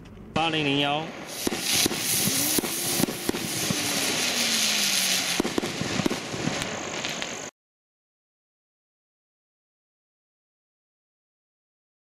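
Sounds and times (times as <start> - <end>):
firework crackling pops: 1.2 - 7.5
firework spinner hissing: 1.2 - 7.5.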